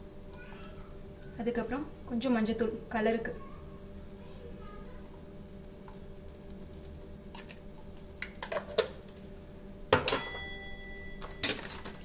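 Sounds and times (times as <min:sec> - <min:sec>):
faint background hum: 0:00.0 - 0:12.0
kitchen items clicking and tapping: 0:08.2 - 0:09.1, 0:09.9 - 0:10.5.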